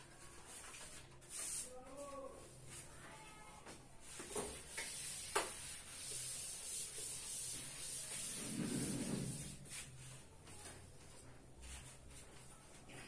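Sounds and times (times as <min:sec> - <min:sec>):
duster rubbing chalkboard: 0:04.1 - 0:10.2.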